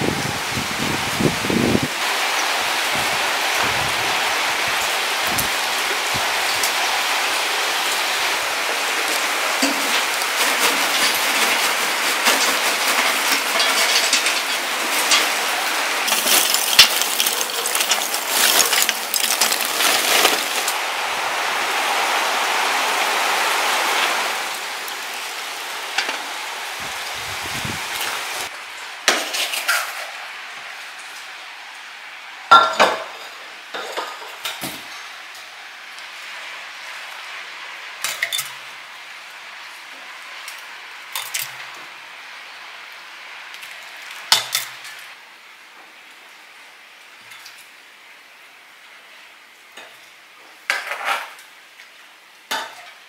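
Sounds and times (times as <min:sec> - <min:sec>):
steady rain hiss: 0:00.0 - 0:53.0
charcoal clattering into metal bucket: 0:08.6 - 0:20.8, 0:29.1 - 0:30.0.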